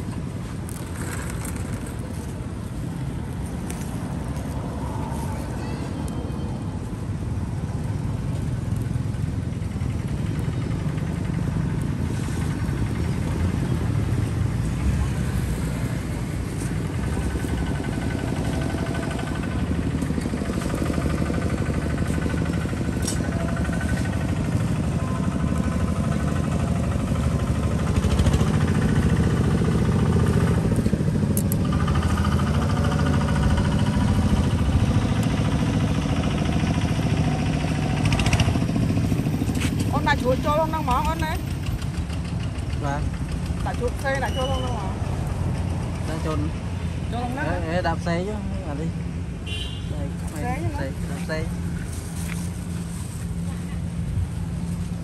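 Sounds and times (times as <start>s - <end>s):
traffic engine rumble: 0.0s - 55.0s
people talking: 5.2s - 6.8s.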